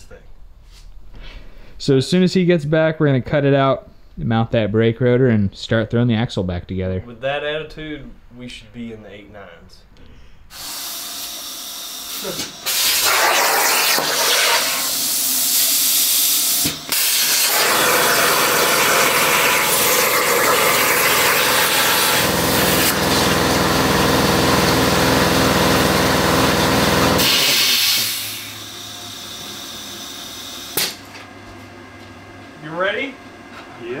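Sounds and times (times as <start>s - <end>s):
plasma cutter hissing: 12.1s - 23.3s, 27.2s - 28.7s.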